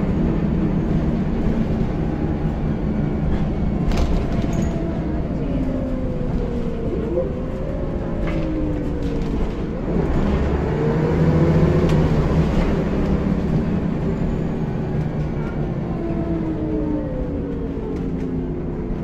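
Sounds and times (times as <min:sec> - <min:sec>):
bus diesel engine whining: 0:00.0 - 0:19.0
bus body rattles: 0:00.1 - 0:10.7.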